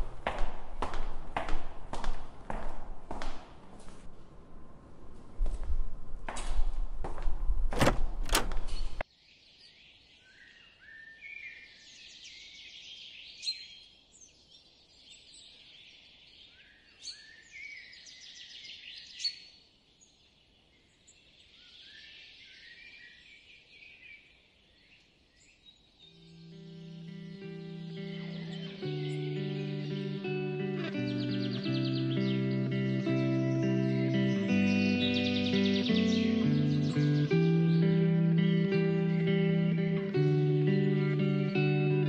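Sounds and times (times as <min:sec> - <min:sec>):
rumbling handling noise: 0:02.3 - 0:09.0
birds singing: 0:08.3 - 0:42.0
guitar music: 0:26.3 - 0:42.0.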